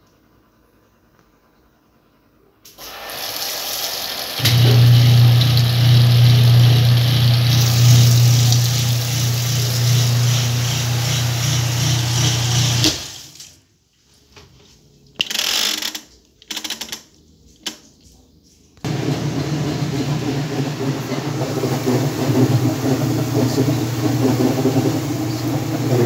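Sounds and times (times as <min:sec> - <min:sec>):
washing machine running: 0:02.7 - 0:13.5, 0:18.8 - 0:26.0.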